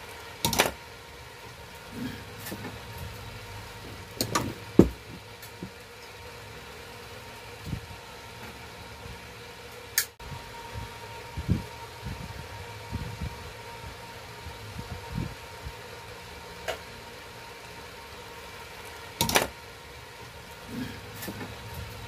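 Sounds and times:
background hum: 0:00.0 - 0:22.0.

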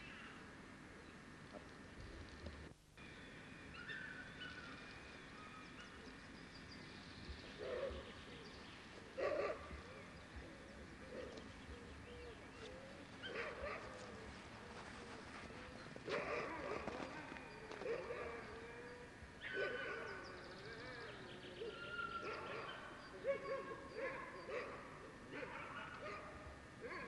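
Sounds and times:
dogs barking and yelping: 0:09.1 - 0:10.1, 0:13.1 - 0:27.0.

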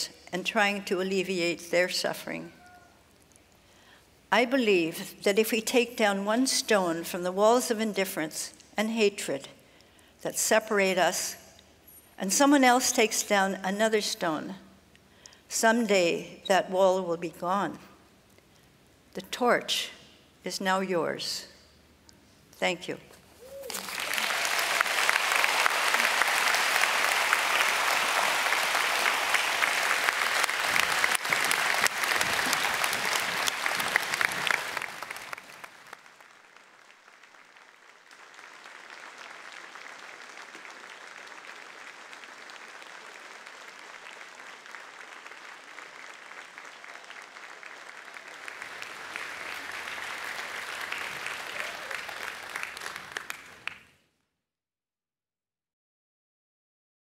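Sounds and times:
audience applauding: 0:23.6 - 0:53.9.

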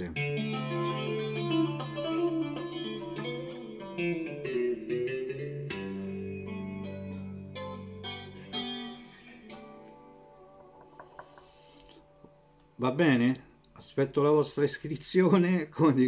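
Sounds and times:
clean electric guitar arpeggios: 0:00.0 - 0:11.2.

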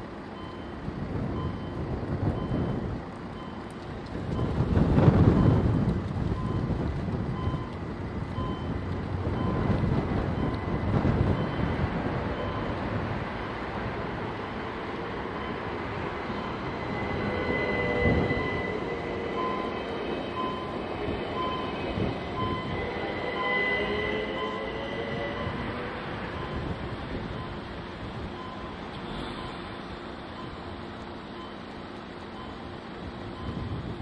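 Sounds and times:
train rolling over crossing: 0:00.0 - 0:34.0
wind buffeting microphone: 0:00.9 - 0:23.3, 0:24.9 - 0:28.5, 0:32.9 - 0:34.0
high whine and wheel squeal: 0:08.4 - 0:12.9, 0:14.1 - 0:31.7.

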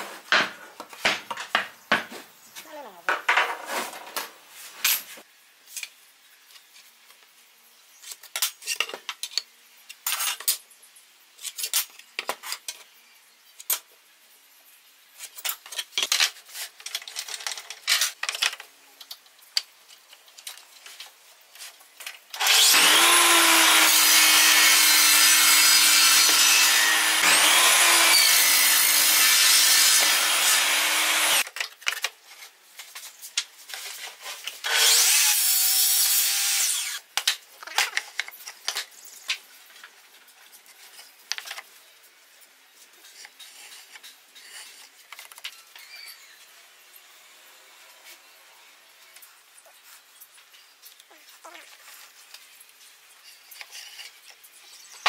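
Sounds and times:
table saw cutting wood: 0:22.4 - 0:31.4, 0:34.6 - 0:37.0.

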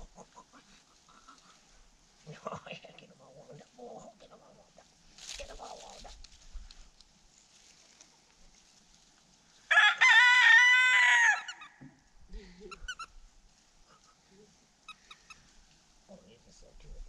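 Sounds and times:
rooster crowing: 0:09.7 - 0:11.8.

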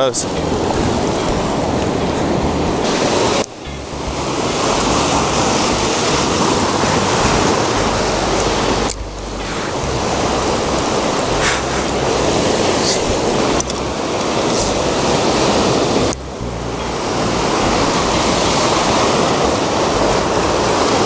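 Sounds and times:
surf breaking over rocks: 0:00.0 - 0:21.0
wind on microphone: 0:00.0 - 0:21.0.

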